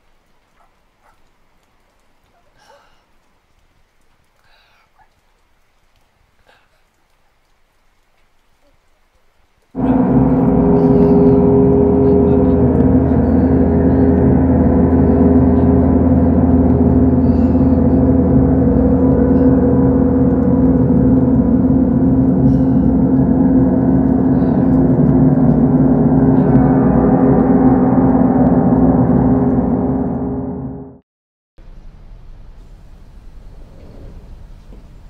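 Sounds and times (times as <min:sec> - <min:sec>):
gong-like drone: 0:09.8 - 0:31.0.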